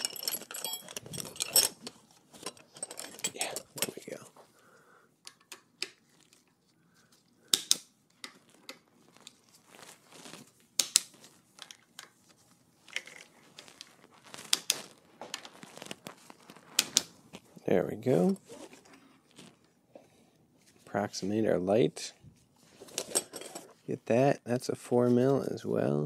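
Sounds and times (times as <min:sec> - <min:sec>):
gloved hands rustling: 0:05.3 - 0:21.1.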